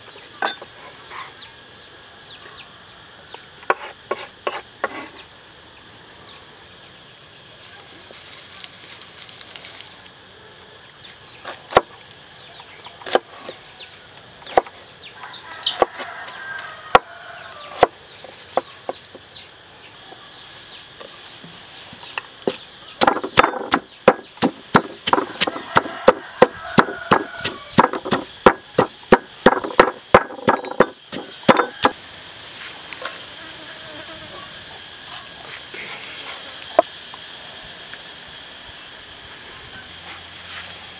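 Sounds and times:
wooden pestle pounding in mortar: 22.5 - 32.0.

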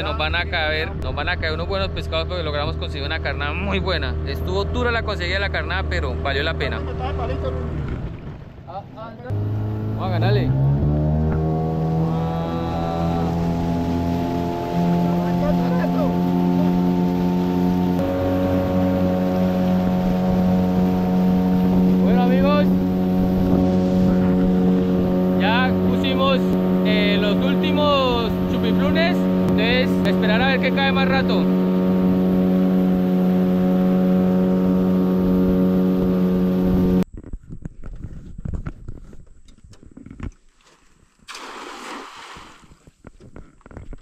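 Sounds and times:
outboard motor drone: 0.0 - 8.6, 9.3 - 37.0
water rushing along hull: 0.0 - 37.0, 41.3 - 42.8.

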